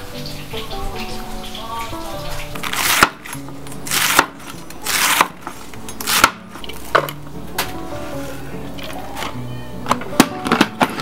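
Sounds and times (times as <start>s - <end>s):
knife slicing through cabbage: 2.6s - 6.9s.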